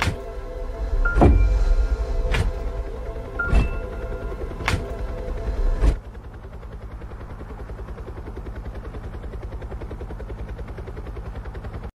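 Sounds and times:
helicopter rotor chop: 0.0 - 11.9.

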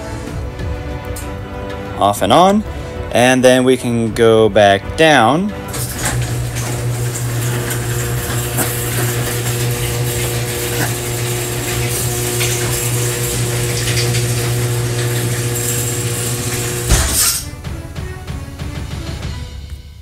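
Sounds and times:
garage door opener humming: 5.5 - 19.1.

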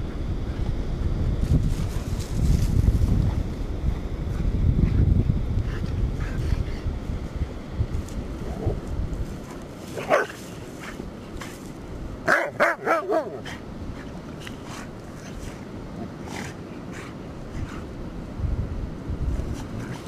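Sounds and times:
dogs playing: 1.4 - 18.2
dog barking: 10.0 - 10.4, 12.3 - 13.5.

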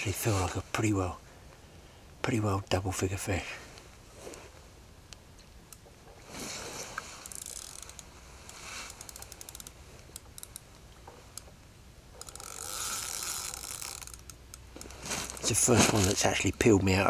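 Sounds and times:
fishing reel clicking: 7.2 - 8.1, 8.9 - 10.7, 12.2 - 15.4.

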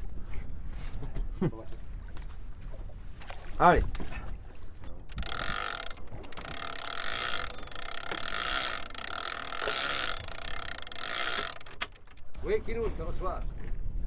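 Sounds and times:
fishing reel ratchet buzzing: 5.1 - 12.4.

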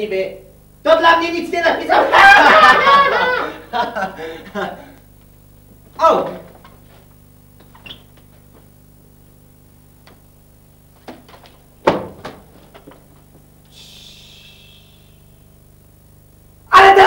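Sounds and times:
steady low hum: 0.0 - 17.0
light knocks on stage: 11.0 - 12.6
sharp thump on stage: 11.8 - 12.5
soft hiss: 13.0 - 16.7.

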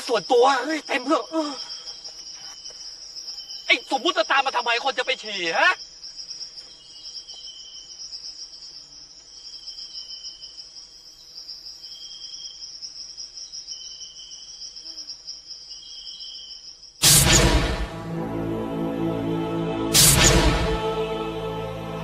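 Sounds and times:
insects trilling: 0.0 - 17.0
lower insect chirp: 0.0 - 17.0.

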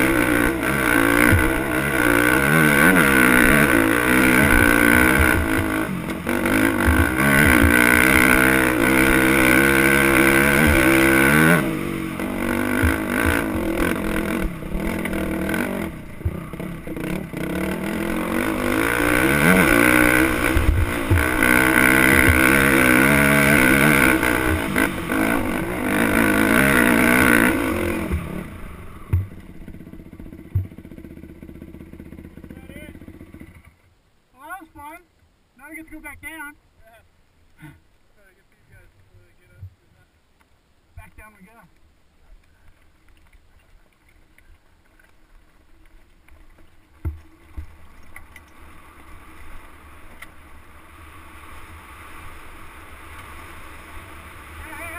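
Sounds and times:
dirt bike engine revving: 0.0 - 33.8.

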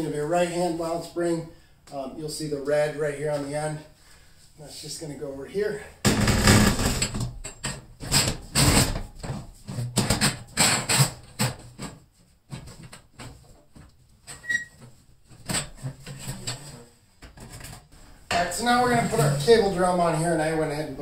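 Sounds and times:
metal spring clanking and scraping: 15.4 - 19.6.

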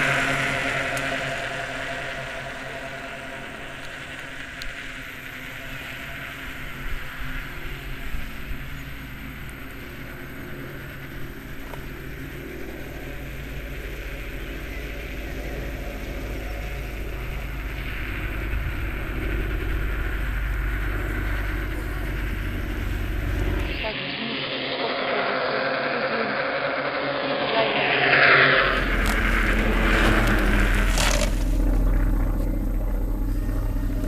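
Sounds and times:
skateboard wheels rumbling on concrete: 25.5 - 32.7.

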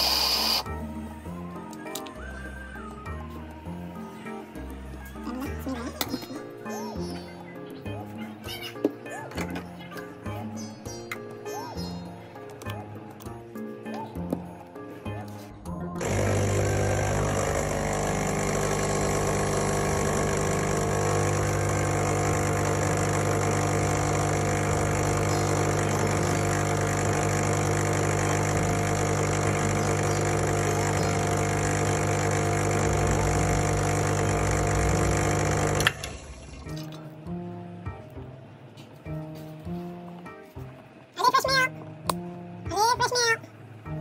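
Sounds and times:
espresso machine pump humming: 0.0 - 0.7, 16.0 - 36.6.

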